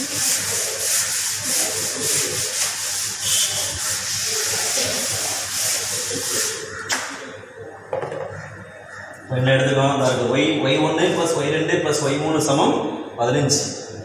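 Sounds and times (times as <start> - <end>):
duster rubbing on blackboard: 0.0 - 6.7.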